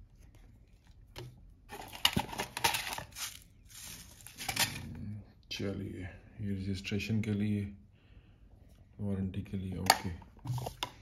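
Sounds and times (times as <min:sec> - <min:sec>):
paper and cardboard rustling: 0:01.7 - 0:04.8.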